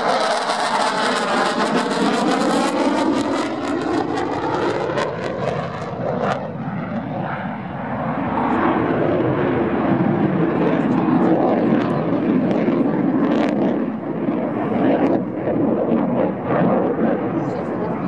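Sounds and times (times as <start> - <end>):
jet engine roar with crackles: 0.0 - 18.0.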